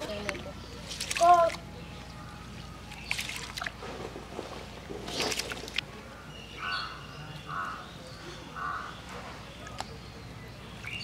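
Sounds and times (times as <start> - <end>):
water splash: 0.8 - 1.6, 2.9 - 5.9
bird calling: 6.2 - 9.9.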